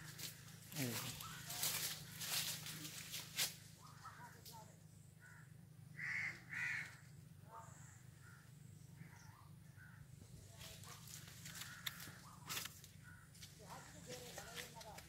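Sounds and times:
faint bird calls: 0.0 - 15.0
crow cawing: 0.8 - 2.4, 5.2 - 10.2, 11.1 - 14.7.

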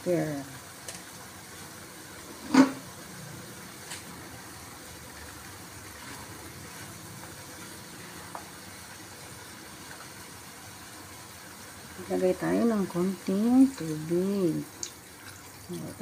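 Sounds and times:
low cooking rumble: 0.0 - 16.0
spatula stirring in a wok: 5.1 - 9.0.

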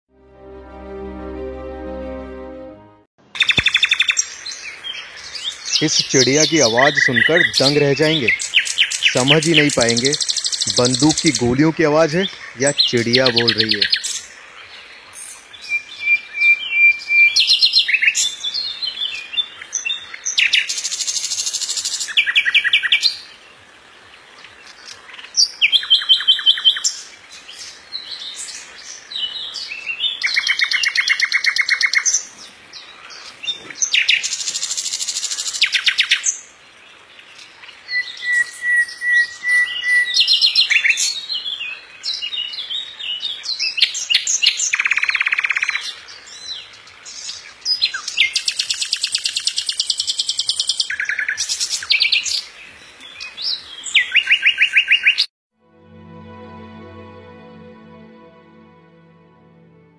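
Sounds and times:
nightingale singing: 3.4 - 14.4, 24.4 - 32.3, 37.4 - 55.2.

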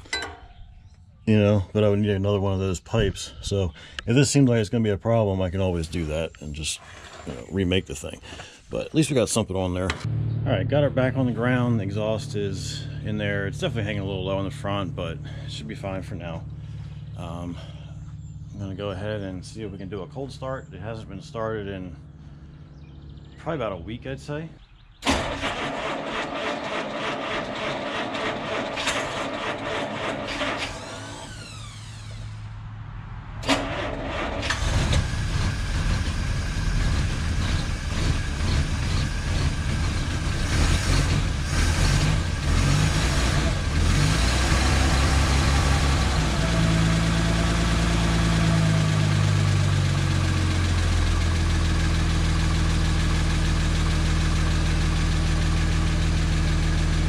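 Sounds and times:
car engine idling: 5.5 - 57.0
starter motor cranking: 25.0 - 32.4, 33.4 - 36.2.

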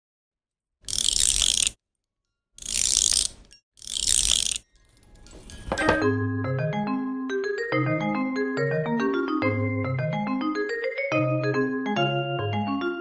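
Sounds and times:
ratchet clicking: 0.8 - 1.8, 2.6 - 4.6.

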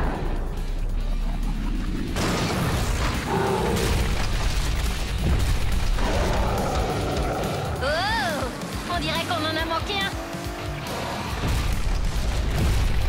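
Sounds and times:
deep rumble: 0.0 - 8.8
background music: 0.0 - 13.0.

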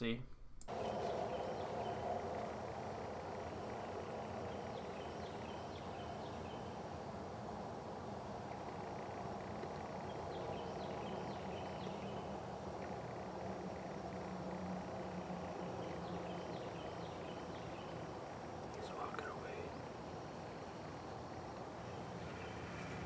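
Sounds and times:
faint bird chirps: 0.7 - 2.5, 18.7 - 19.8
high insect drone: 0.7 - 23.0.

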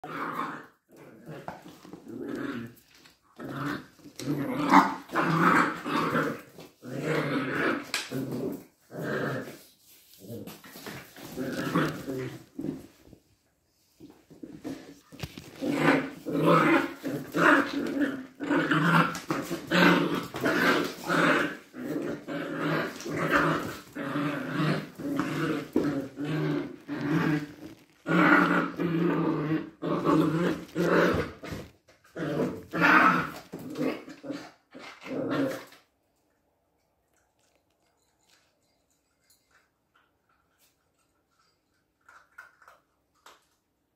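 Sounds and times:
puppy growling: 0.0 - 13.2, 14.0 - 35.9.

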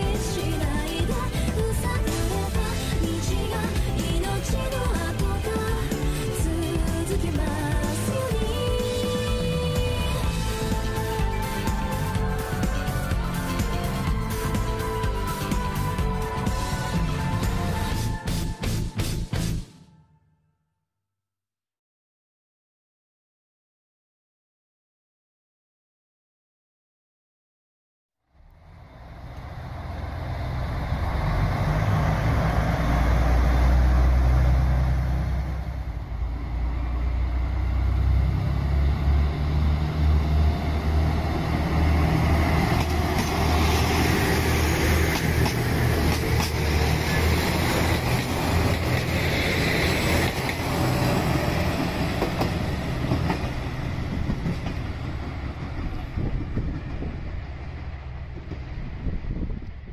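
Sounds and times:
railcar engine drone: 0.0 - 20.1, 28.3 - 59.9
rumbling train wheels: 28.5 - 59.9
rapid rail clicks: 42.6 - 51.2.

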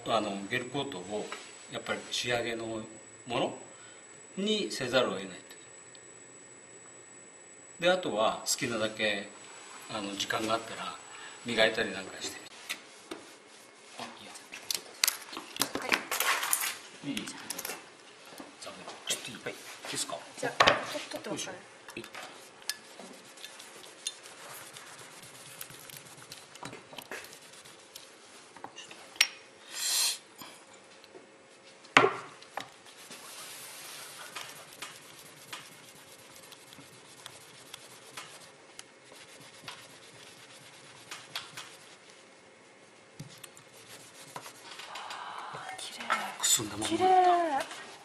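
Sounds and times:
paper towel scraping metal: 22.8 - 28.0, 32.9 - 42.2
brief hiss: 29.7 - 30.3.

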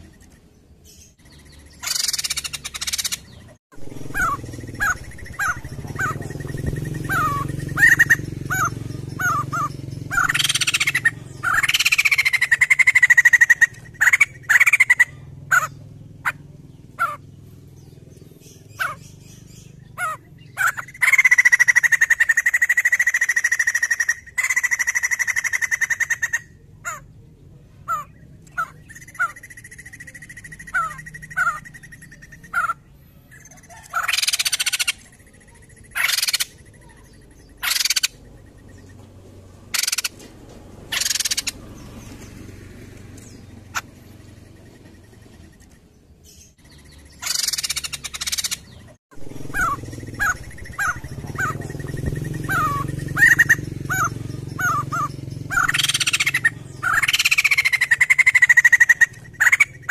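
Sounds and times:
bird rapid chattering call: 0.0 - 27.2, 27.8 - 59.9
bird chirping and whistling: 1.2 - 17.2, 28.5 - 38.8, 39.7 - 40.2, 41.0 - 42.2, 46.6 - 59.9.

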